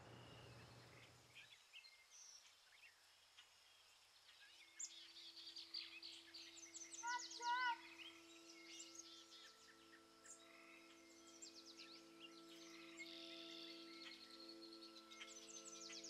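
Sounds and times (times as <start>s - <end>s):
small birds chirping: 0.0s - 16.0s
soft sustained music notes: 0.0s - 16.0s
bird warbling call: 5.6s - 16.0s.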